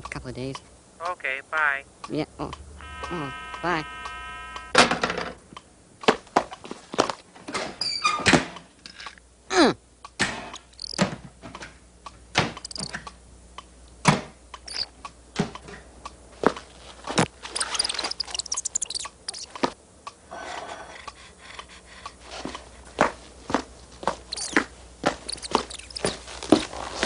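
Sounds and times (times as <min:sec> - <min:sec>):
cartoon taps and clicks: 0:10.1 - 0:11.1, 0:12.4 - 0:13.2, 0:14.6 - 0:14.9, 0:17.2 - 0:19.8, 0:24.3 - 0:26.1
flurry of ticks: 0:10.5 - 0:11.0, 0:12.6 - 0:13.2, 0:14.6 - 0:14.9, 0:17.2 - 0:19.8, 0:24.2 - 0:26.5.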